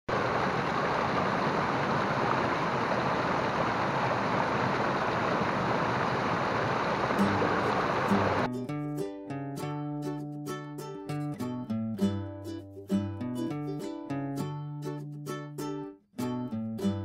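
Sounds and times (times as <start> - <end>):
waterfall rushing over boulders: 0.1 - 8.5.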